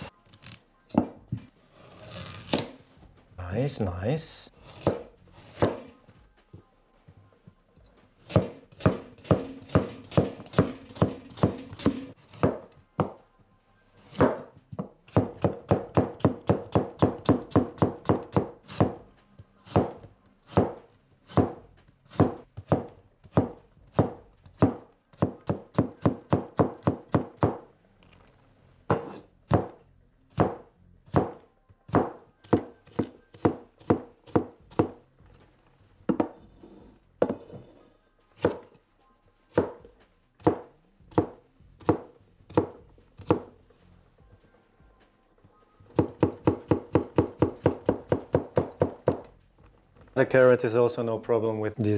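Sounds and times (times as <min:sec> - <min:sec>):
knife chopping on wooden board: 0:04.6 - 0:05.9, 0:08.2 - 0:13.2, 0:19.7 - 0:27.6, 0:28.9 - 0:29.8, 0:40.4 - 0:43.6.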